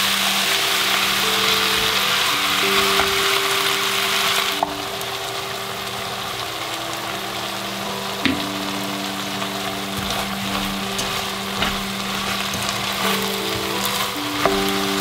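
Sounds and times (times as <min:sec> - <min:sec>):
food sizzling in frying pan: 0:00.0 - 0:15.0
spatula knocking on pan: 0:10.0 - 0:15.0.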